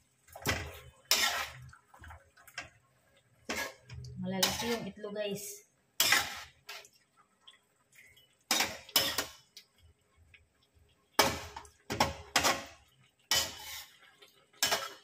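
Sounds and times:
metal spatula scraping a wok: 0.5s - 1.6s, 3.4s - 5.0s, 6.0s - 6.9s, 8.5s - 9.4s, 11.2s - 15.0s.

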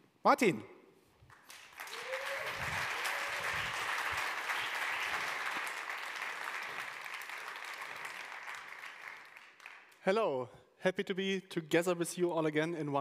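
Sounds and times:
audience applauding: 1.3s - 10.0s.

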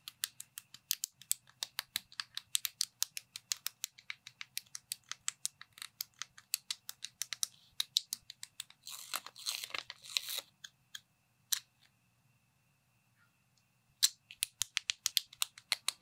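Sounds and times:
plastic blocks clicking together: 0.0s - 8.9s, 14.0s - 16.0s.

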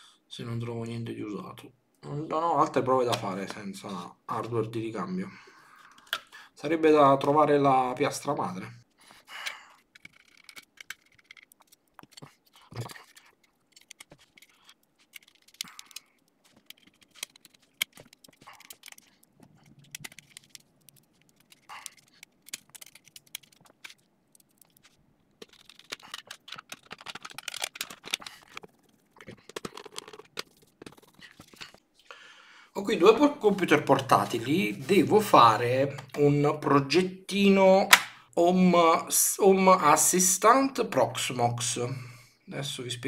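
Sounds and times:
small parts clicking and scraping: 9.1s - 31.9s.

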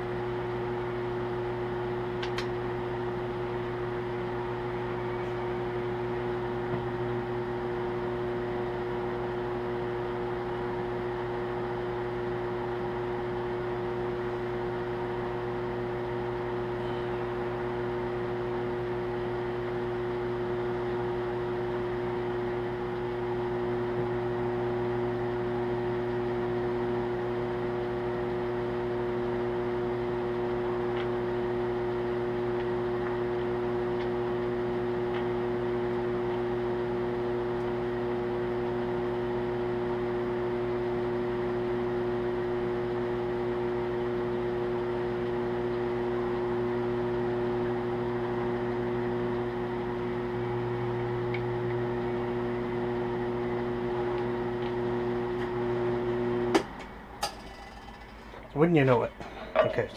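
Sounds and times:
drill press motor humming: 0.0s - 39.8s.

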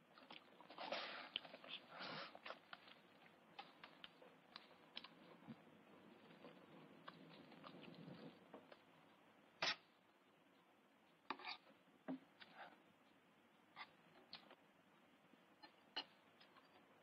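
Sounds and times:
spoon scraping a pan: 11.3s - 11.7s.

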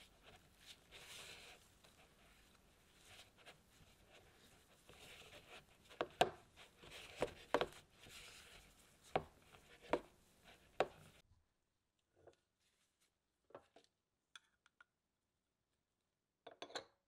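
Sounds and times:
spatula scraping dough in a bowl: 0.0s - 11.2s.

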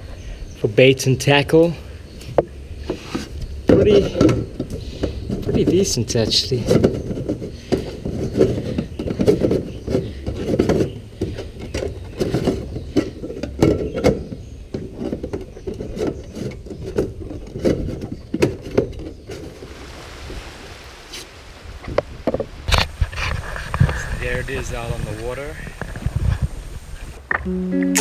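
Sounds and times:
faint steady hiss: 19.3s - 28.0s.

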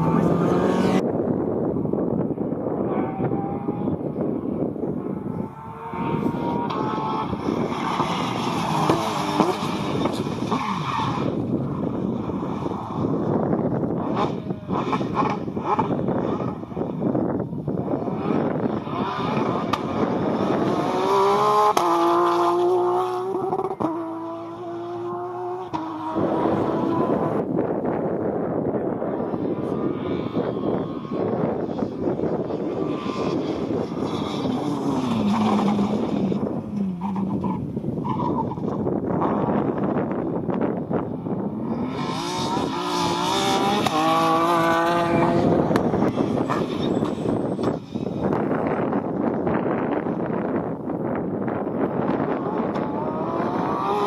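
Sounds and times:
rally car engines at speed: 0.0s - 54.0s.

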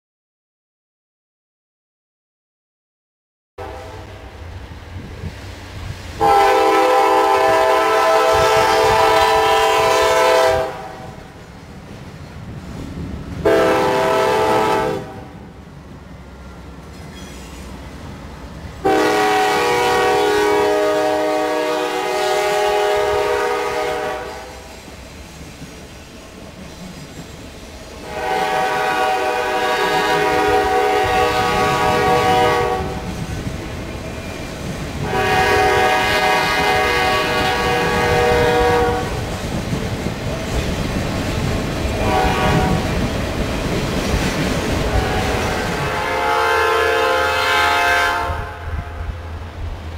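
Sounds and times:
locomotive air horn blasts: 3.6s - 4.2s, 6.2s - 11.2s, 13.4s - 15.4s, 18.8s - 24.7s, 28.0s - 33.1s, 35.0s - 39.3s, 41.9s - 43.0s, 44.8s - 49.2s
train engines rumbling: 3.6s - 49.9s
train wheels clacking: 16.8s - 17.9s, 24.5s - 28.2s, 35.7s - 46.0s.

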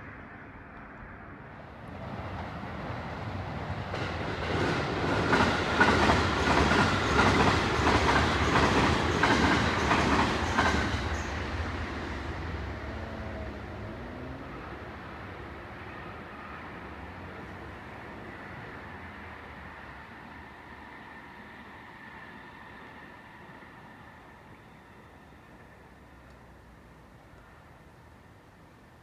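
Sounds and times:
train passing: 0.0s - 29.0s
wheels clacking over rail joints: 3.9s - 12.4s.

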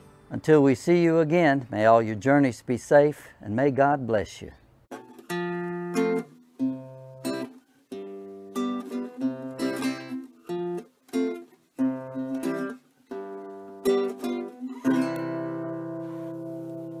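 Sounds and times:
acoustic guitar strumming: 0.0s - 0.4s, 4.9s - 17.0s.

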